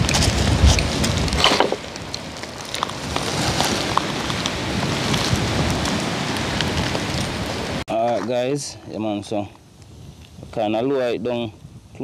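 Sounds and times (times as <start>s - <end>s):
wood fire crackling and popping: 0.0s - 10.8s.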